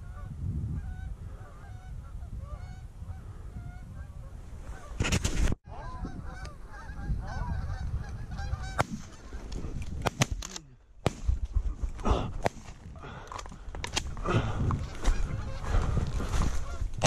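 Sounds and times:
geese honking: 5.7 - 9.4, 14.8 - 17.0
sharp cracks: 9.8 - 11.5.

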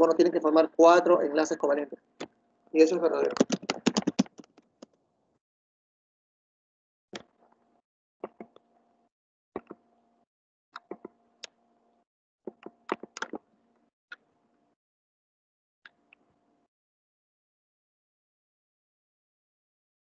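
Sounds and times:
mouse and keyboard clicks: 3.2 - 4.6, 8.2 - 8.6, 10.8 - 11.1, 12.5 - 13.4.

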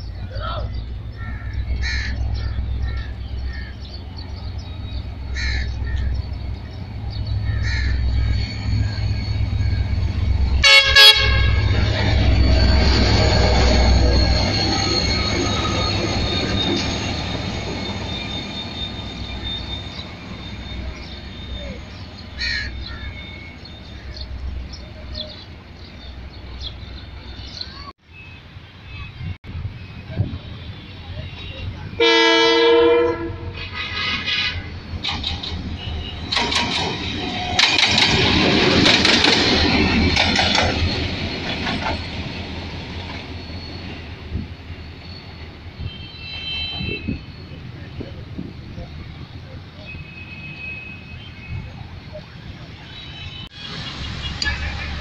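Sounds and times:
distant diesel locomotive rumble: 0.0 - 27.9, 28.5 - 55.0
crows cawing: 1.2 - 3.9, 5.3 - 6.2, 7.4 - 8.2, 22.4 - 23.2.

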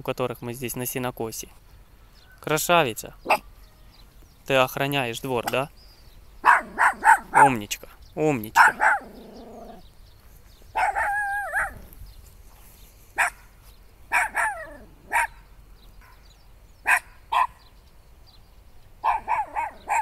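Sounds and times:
small dog barking: 3.2 - 3.5, 6.4 - 7.6, 8.6 - 9.8, 10.7 - 11.9, 13.2 - 13.5, 14.1 - 15.4, 16.8 - 17.7, 19.0 - 20.0.

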